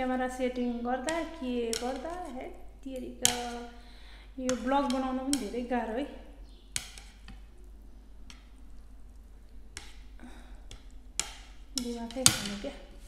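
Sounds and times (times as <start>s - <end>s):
chopsticks clicking: 1.1s - 2.2s, 8.3s - 8.6s, 9.7s - 10.0s, 10.6s - 12.8s.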